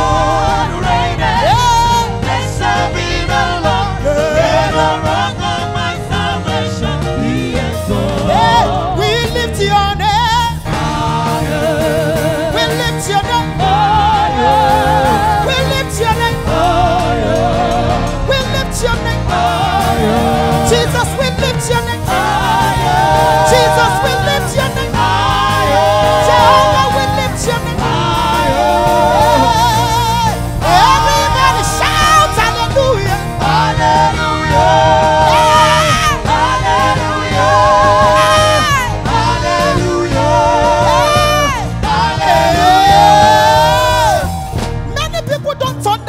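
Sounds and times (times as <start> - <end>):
backing singers: 0.0 - 45.0
band with heavy bass and drums: 0.0 - 46.0
woman singing lead: 22.8 - 45.2.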